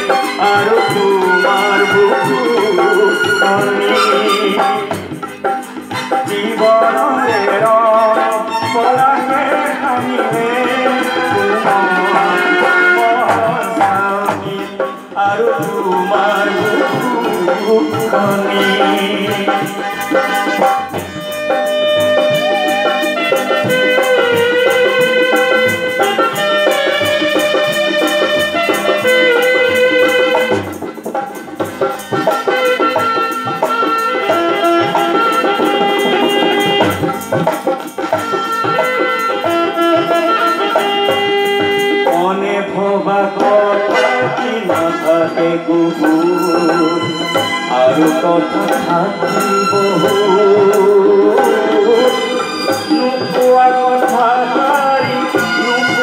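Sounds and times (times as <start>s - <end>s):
bending held melody line: 0.0s - 56.0s
steady drum beat: 0.0s - 56.0s.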